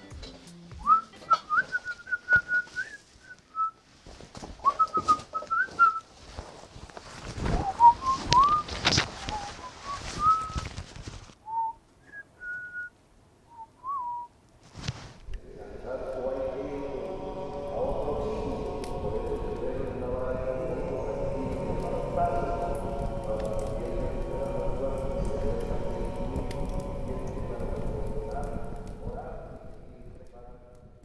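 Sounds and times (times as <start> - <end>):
man whistling a tune: 0.8 - 3.8, 4.6 - 6.0, 11.5 - 12.9, 13.5 - 14.3
clothing rustling: 1.6 - 11.4, 14.6 - 15.4.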